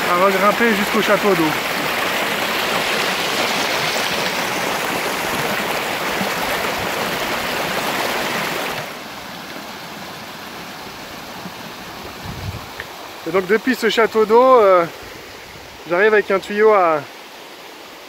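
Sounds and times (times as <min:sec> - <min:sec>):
water spraying from pump valve: 0:00.0 - 0:15.4
soft running water: 0:00.0 - 0:18.0.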